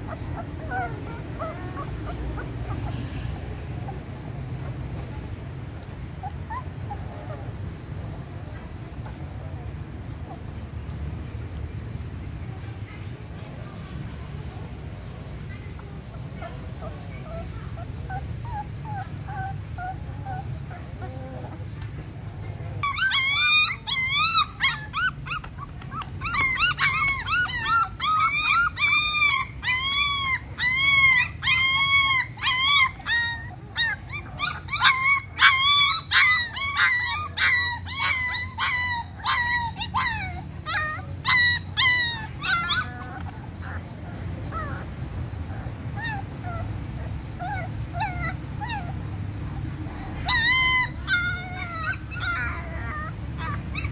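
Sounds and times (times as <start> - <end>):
puppies whining and crying: 0.0 - 12.2, 15.0 - 53.9.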